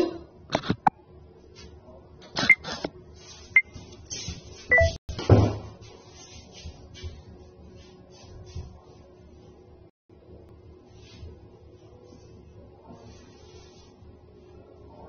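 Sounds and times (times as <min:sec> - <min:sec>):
short electronic beeps: 0:04.7 - 0:05.0.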